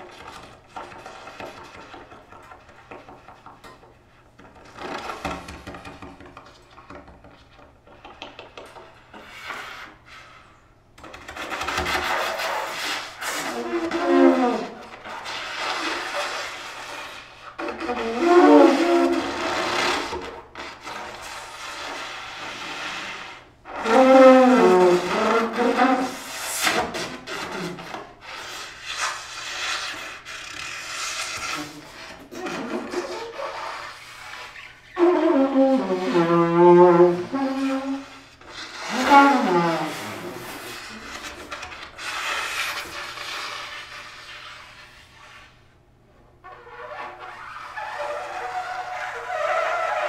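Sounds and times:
rasping air through brass horn: 12.1 - 20.2, 20.9 - 27.8, 28.4 - 44.5.

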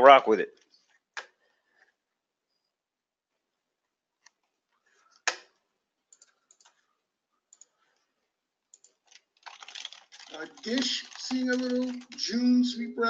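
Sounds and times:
keyboard and mouse clicks: 4.2 - 6.8, 7.5 - 7.8, 8.7 - 12.4.

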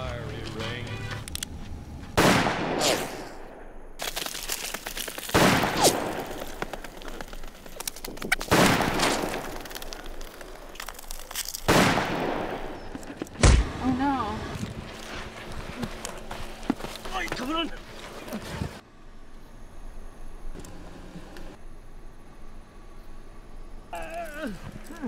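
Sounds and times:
gunshots with long echo: 2.2 - 4.0, 5.3 - 6.9, 8.4 - 9.6, 11.7 - 13.8.

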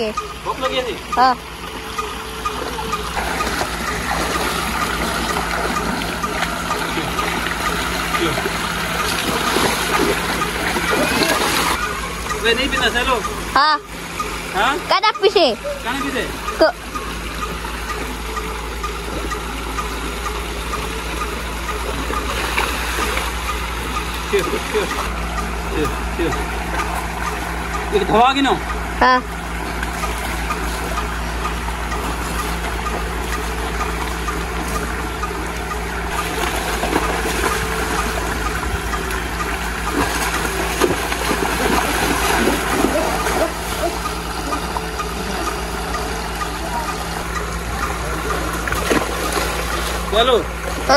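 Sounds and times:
low machine hum: 0.0 - 50.9
water running in channel: 0.0 - 50.9
calf splashing in water: 2.5 - 11.8, 29.8 - 45.0, 47.9 - 50.9
water rushing into a stony pool: 3.1 - 11.8, 39.4 - 44.0.

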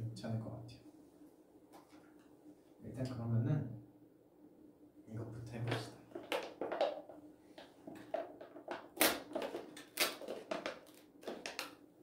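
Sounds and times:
plastic packaging crinkling: 8.0 - 11.8.

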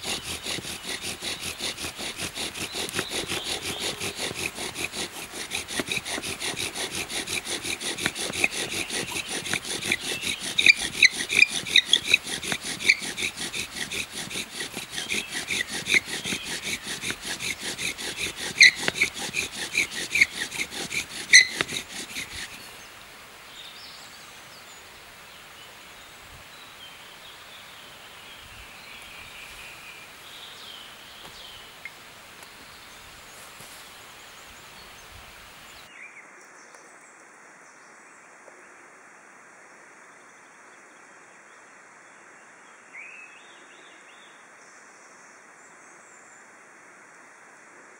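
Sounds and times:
saw cutting wood: 0.0 - 22.8.

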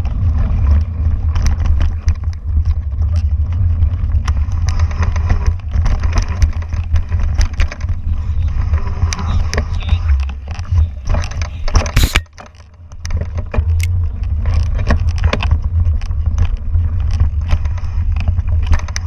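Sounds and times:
wind buffeting microphone: 0.0 - 12.2
bike rattling clicks: 0.0 - 19.0.

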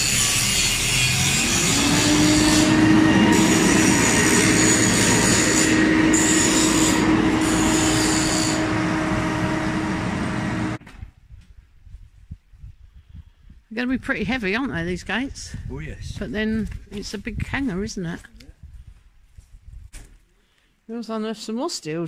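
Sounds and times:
harsh metallic screech: 0.0 - 10.8
machine whine: 0.0 - 10.8.

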